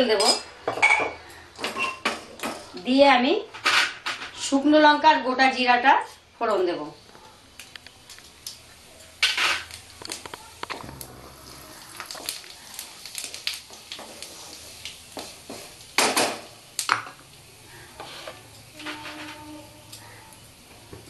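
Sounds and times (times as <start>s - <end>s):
seeds crackling in hot oil: 6.5s - 21.0s.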